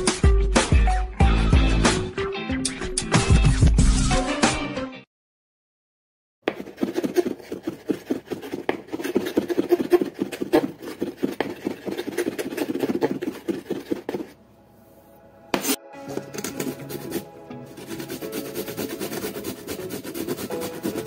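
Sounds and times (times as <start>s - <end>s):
grating on a metal grater: 6.5s - 14.3s, 16.1s - 21.0s.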